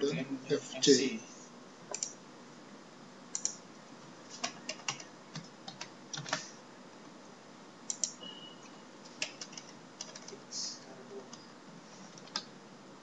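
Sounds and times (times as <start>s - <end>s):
typing on computer keyboard: 1.9s - 2.2s, 3.4s - 3.6s, 4.4s - 6.5s, 7.9s - 8.2s, 9.2s - 10.4s, 12.1s - 12.5s.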